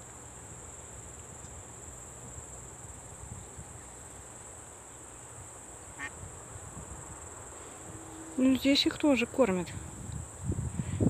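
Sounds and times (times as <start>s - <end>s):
insects chirring: 0.0s - 11.0s
wind rumble on microphone: 5.4s - 11.0s.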